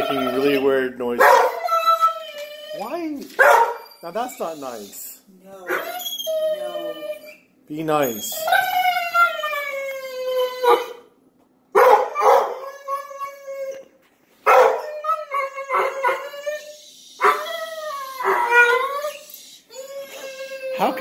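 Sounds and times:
dog whining: 0.0 - 11.1, 11.8 - 21.0
muffled dog bark: 1.2 - 1.6, 3.4 - 3.8, 11.8 - 12.6, 14.5 - 14.8.

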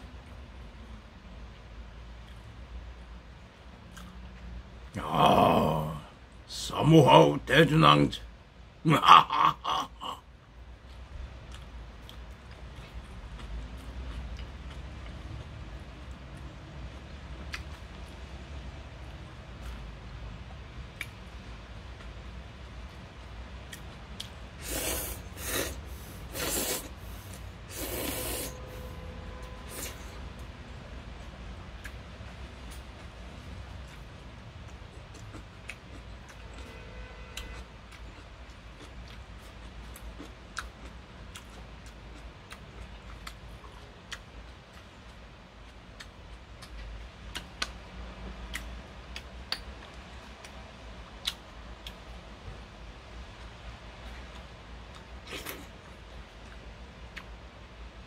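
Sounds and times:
person slurping noodles: 24.6 - 28.8, 29.7 - 30.1.

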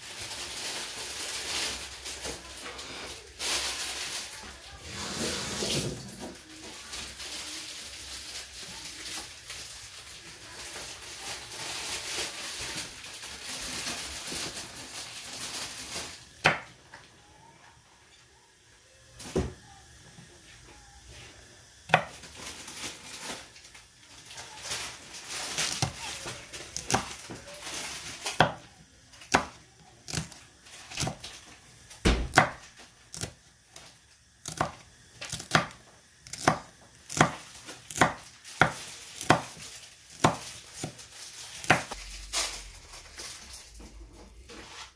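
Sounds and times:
tap water running: 4.8 - 7.6
knife chopping on a wooden board: 32.0 - 32.6, 34.5 - 39.5, 40.2 - 40.9, 41.6 - 41.9.

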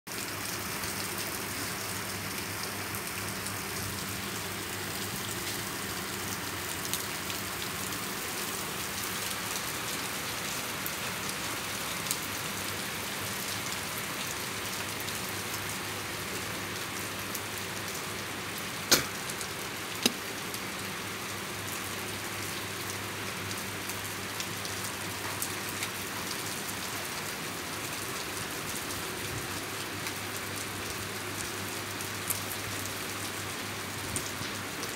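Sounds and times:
heavy rain on a flooded roof: 0.1 - 34.9
sharp knocks: 18.9 - 19.2.

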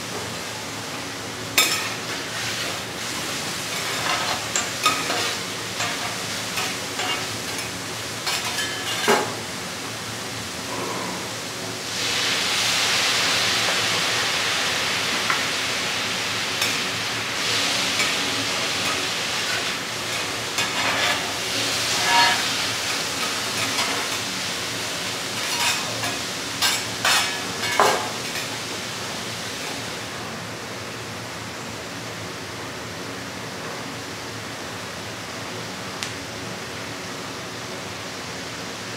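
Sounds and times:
scallops sizzling on a griddle: 1.6 - 9.1, 11.9 - 29.6
spatulas scraping a griddle: 3.7 - 9.4, 17.4 - 24.3, 25.4 - 28.4.

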